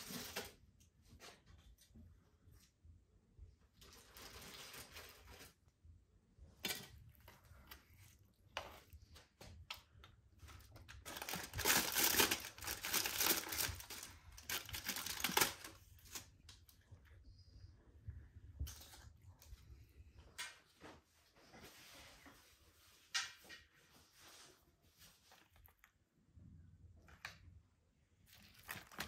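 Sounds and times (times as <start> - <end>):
aluminium foil crinkling: 3.8 - 5.6, 10.5 - 16.3, 28.3 - 29.0.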